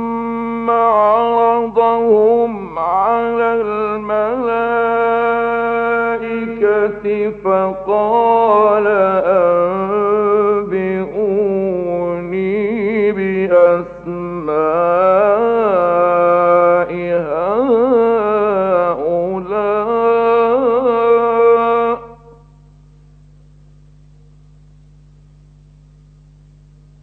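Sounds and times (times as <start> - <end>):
man chanting recitation: 0.0 - 22.3
steady low hum: 0.0 - 27.0.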